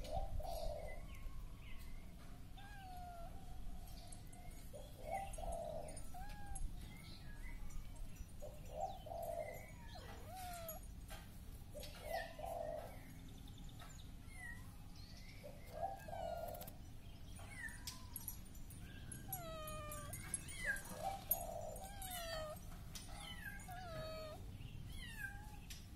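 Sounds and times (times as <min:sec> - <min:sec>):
kittens mewing: 0:02.6 - 0:03.5, 0:06.0 - 0:06.8, 0:10.0 - 0:10.8, 0:19.1 - 0:25.6.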